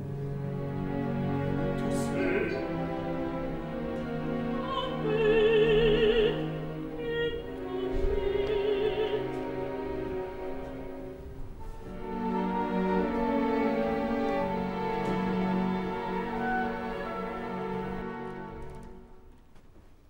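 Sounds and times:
low orchestral strings: 0.0 - 20.0
opera singer with vibrato: 1.8 - 3.6, 4.2 - 9.9.

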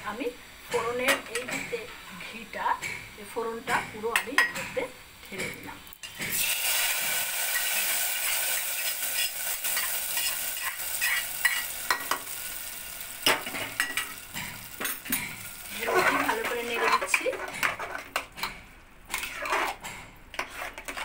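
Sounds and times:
hot ghee sizzling: 0.0 - 18.3
ladle scraping and clinking: 19.1 - 21.0.

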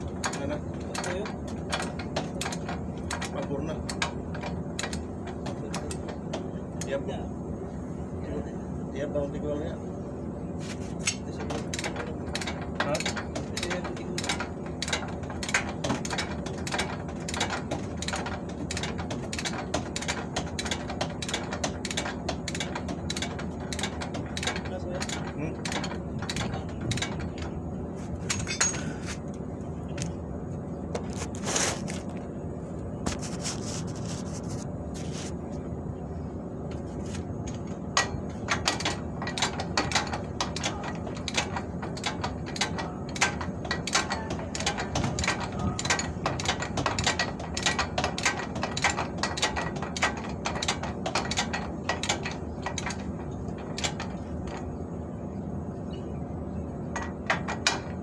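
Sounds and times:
metal tools clicking and clinking: 28.2 - 29.0, 38.0 - 54.7.

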